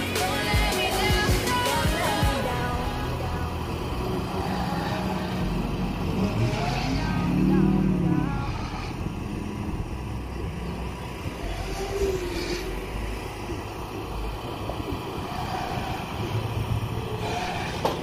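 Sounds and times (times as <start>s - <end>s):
drone motors buzzing: 0.0s - 18.0s
low steady rumble: 0.0s - 18.0s.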